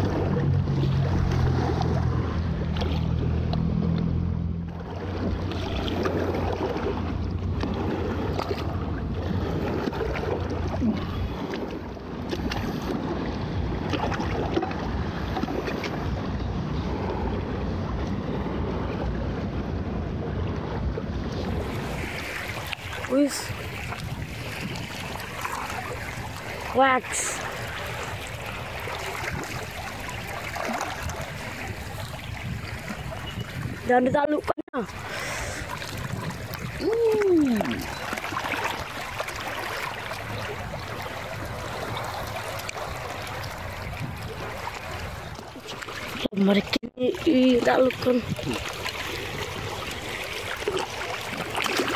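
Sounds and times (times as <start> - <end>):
water lapping against rocks: 0.0 - 51.9
wind buffeting microphone: 4.8 - 51.9
fish splashing at surface: 47.4 - 51.9.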